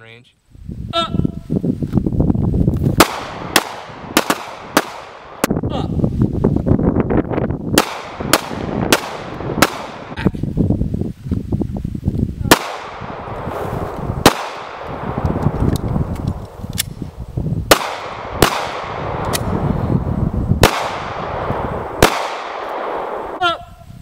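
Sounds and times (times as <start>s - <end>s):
pistol shots echoing: 3.0s - 5.5s, 7.8s - 10.1s, 12.5s - 13.4s, 14.2s - 15.4s, 17.7s - 19.5s, 20.6s - 23.4s.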